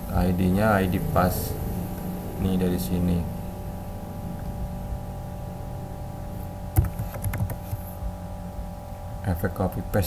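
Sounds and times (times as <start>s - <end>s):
low electrical hum: 0.0s - 10.0s
keyboard keystrokes: 6.8s - 7.8s.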